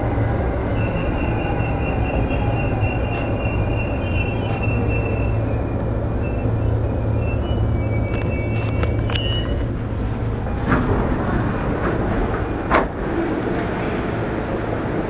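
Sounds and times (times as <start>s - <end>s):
train rumble and hum: 0.0s - 15.0s.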